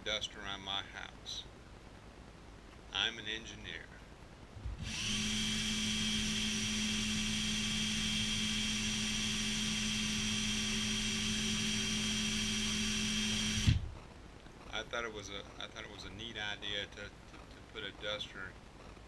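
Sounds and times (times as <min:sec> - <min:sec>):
cordless drill motor whine: 0:04.8 - 0:13.9.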